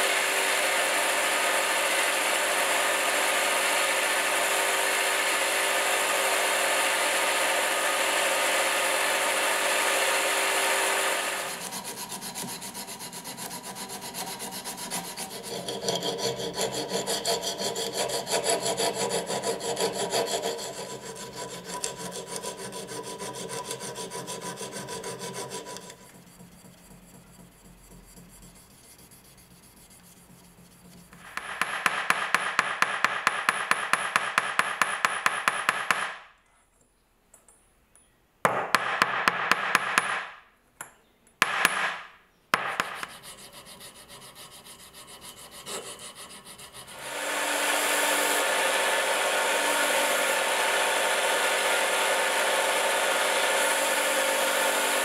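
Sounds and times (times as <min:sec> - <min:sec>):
belt grinder running: 0:00.0 - 0:26.1, 0:46.7 - 0:55.0
hand file scraping steel: 0:09.6 - 0:31.4, 0:42.8 - 0:55.0.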